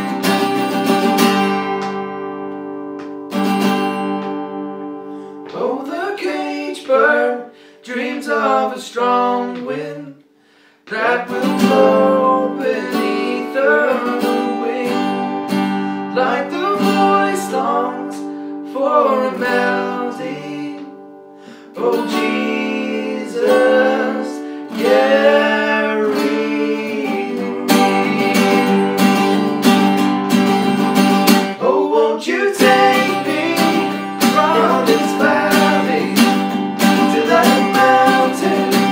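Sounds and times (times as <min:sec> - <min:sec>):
acoustic bass guitar: 0:00.0 - 0:06.2, 0:10.9 - 0:38.9
acoustic guitar strumming: 0:00.0 - 0:07.7, 0:10.9 - 0:38.9
man singing: 0:05.4 - 0:10.2, 0:10.9 - 0:15.3, 0:16.1 - 0:21.0, 0:21.7 - 0:29.7, 0:31.5 - 0:38.9.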